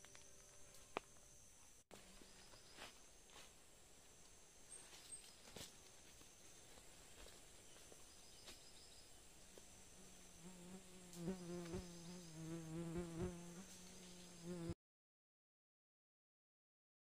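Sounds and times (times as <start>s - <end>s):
faint high insect calls: 0.0s - 14.7s
flying insect buzzing: 9.5s - 14.8s.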